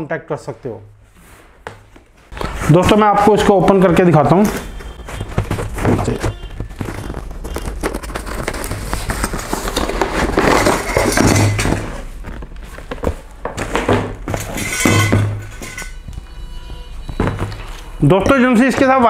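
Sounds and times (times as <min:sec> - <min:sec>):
cardboard scraping and rustling: 0:04.3 - 0:14.7
handling knocks and clicks: 0:04.3 - 0:16.3, 0:17.0 - 0:19.0
plastic bag crinkling: 0:04.4 - 0:13.4.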